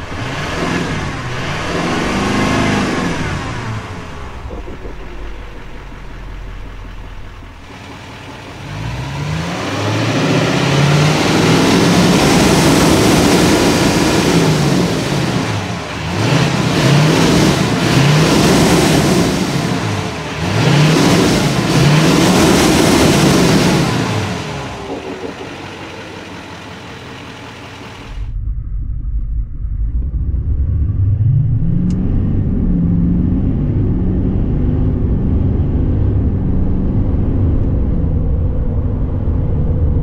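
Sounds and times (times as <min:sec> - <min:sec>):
diesel engine revving: 0:00.0 - 0:28.4.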